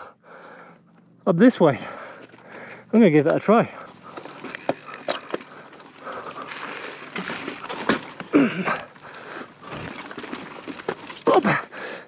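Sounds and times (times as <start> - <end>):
person breathing hard: 0.0 - 0.9, 1.8 - 2.9, 8.3 - 9.6, 11.5 - 12.0
bike knocking on rock: 4.0 - 9.0
person grunting: 8.3 - 8.9.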